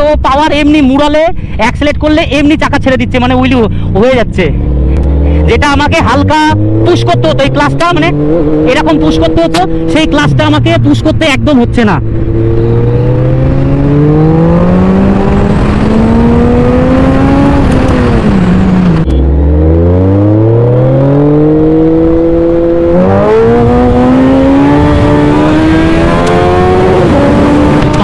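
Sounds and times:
motorcycle engine accelerating: 4.3 - 28.0.

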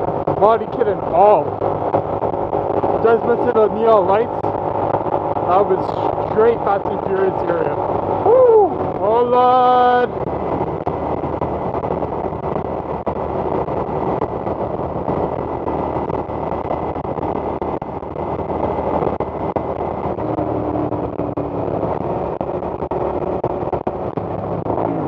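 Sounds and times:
motorcycle engine: 0.0 - 25.0
wind rushing over microphone: 0.0 - 25.0
low tone: 10.1 - 25.0.

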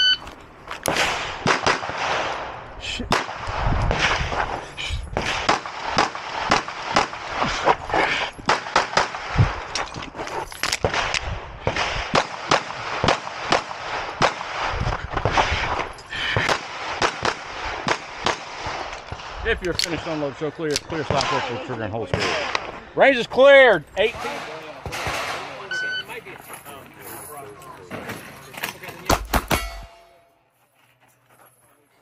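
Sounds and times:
pistol shots: 0.8 - 4.2, 5.2 - 7.4, 8.4 - 9.4, 10.8 - 15.4, 16.4 - 20.2.

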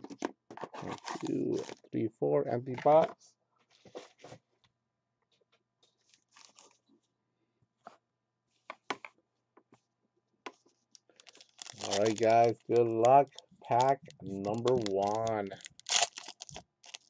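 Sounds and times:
foil packs and cards rustling: 0.1 - 1.9, 6.0 - 6.8, 11.1 - 17.0.

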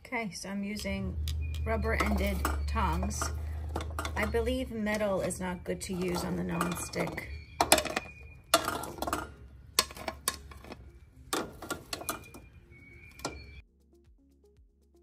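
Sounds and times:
tongs clinking on plate and pan: 2.0 - 5.2, 5.8 - 10.8.

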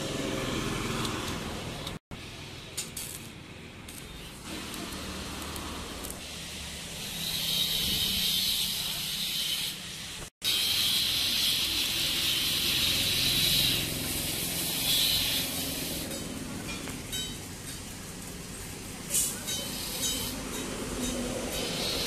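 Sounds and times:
welding arc hissing: 2.2 - 16.2, 18.0 - 20.6, 21.5 - 22.0.

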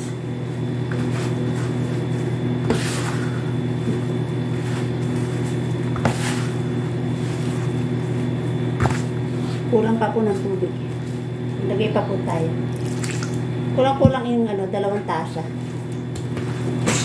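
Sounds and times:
hands kneading dough: 0.0 - 13.2
electrical appliance hum: 0.0 - 17.0.

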